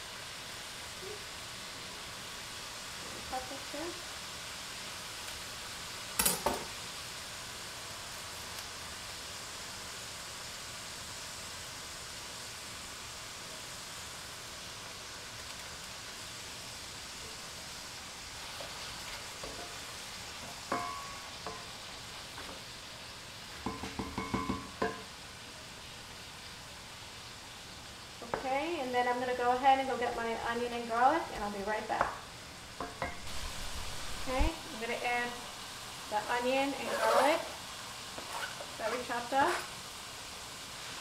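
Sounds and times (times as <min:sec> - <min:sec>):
meat sizzling in skillet: 0:00.0 - 0:41.0
wooden spoon scraping pan: 0:36.6 - 0:39.8.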